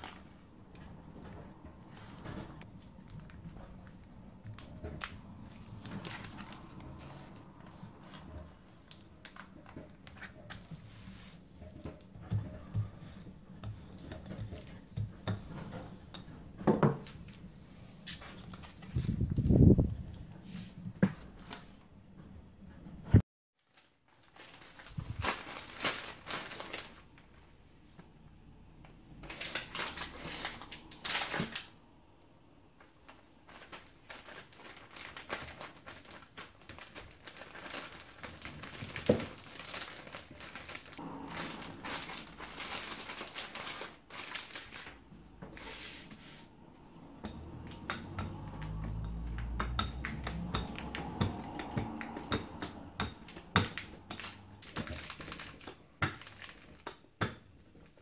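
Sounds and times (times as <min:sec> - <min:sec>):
plastic bag crinkling: 0:01.9 - 0:10.8, 0:23.6 - 0:27.4, 0:29.2 - 0:31.7, 0:32.8 - 0:45.8, 0:53.3 - 0:56.9.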